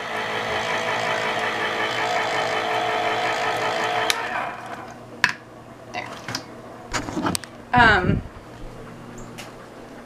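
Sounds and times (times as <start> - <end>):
electric can opener motor: 0.0 - 5.4.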